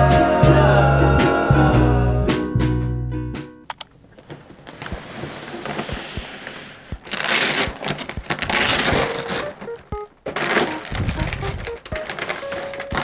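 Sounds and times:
plastic bag crinkling: 7.0 - 13.0.

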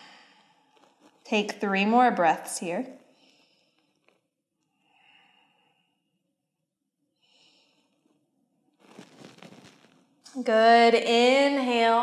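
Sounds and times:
woman breathing faintly: 3.0 - 6.1.

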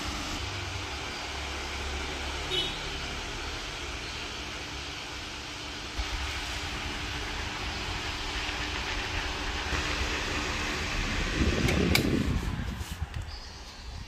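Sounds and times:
wall fan whooshing: 0.0 - 14.0
pull-cord switch clicks: 11.6 - 12.2.

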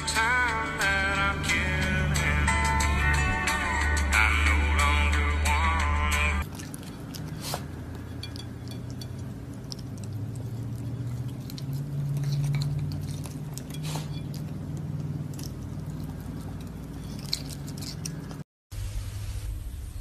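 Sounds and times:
claws tapping on china plate: 7.9 - 10.1.

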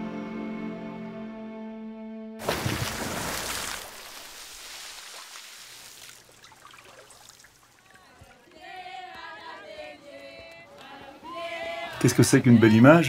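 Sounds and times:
water splashing in river: 2.4 - 7.9
water trickling: 2.4 - 8.0
voices: 7.8 - 13.0.

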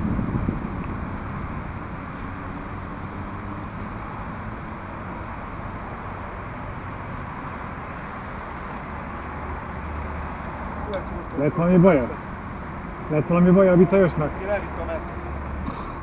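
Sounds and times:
wind rushing over microphone: 0.0 - 4.5.

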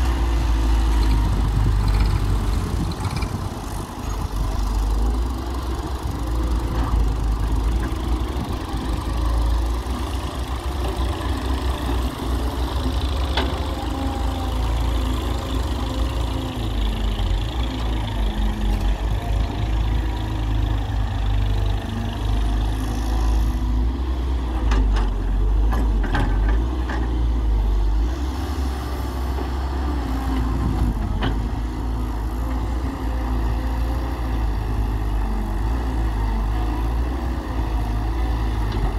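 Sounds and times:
tractor engine running: 0.0 - 23.6
excavator diesel engine: 0.0 - 38.9.

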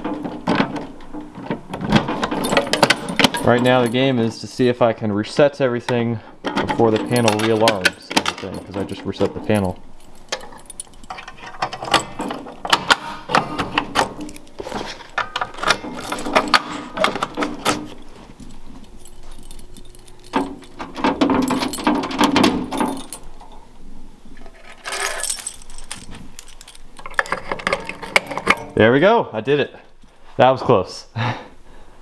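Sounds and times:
keys jangling: 2.1 - 4.6, 6.8 - 12.8, 13.8 - 23.6, 24.4 - 28.8.

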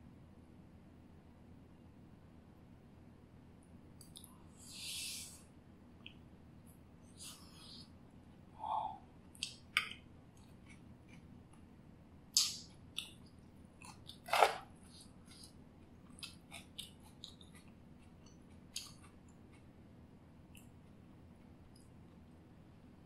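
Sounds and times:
chewing and mouth clicks: 9.3 - 11.7, 12.4 - 19.8, 20.5 - 22.4.

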